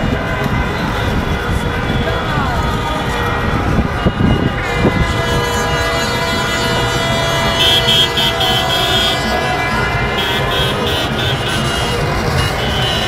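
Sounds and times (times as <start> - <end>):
car horns honking: 0.0 - 13.0.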